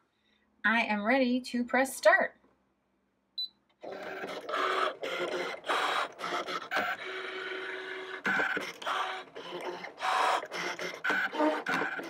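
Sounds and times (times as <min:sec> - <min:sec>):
cutting machine motors whirring: 0:03.8 - 0:12.0.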